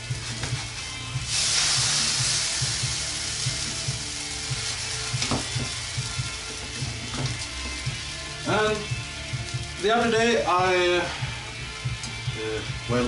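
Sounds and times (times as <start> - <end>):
pancake sizzling in frying pan: 0.0 - 8.3.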